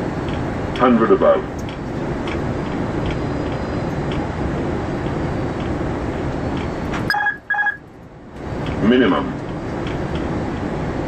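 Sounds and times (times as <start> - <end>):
cockpit airflow and engine noise: 0.0 - 11.0
short beeps: 6.6 - 7.8.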